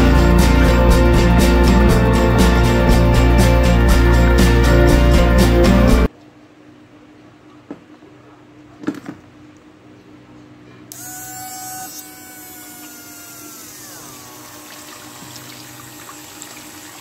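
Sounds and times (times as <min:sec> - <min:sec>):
water pump motor whining: 0:10.9 - 0:17.0.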